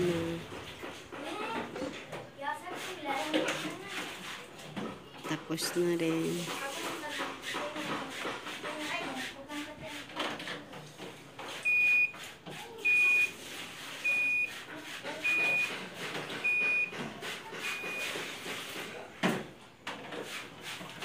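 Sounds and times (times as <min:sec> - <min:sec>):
washing machine beeping: 0:00.0 - 0:00.7, 0:11.5 - 0:18.7.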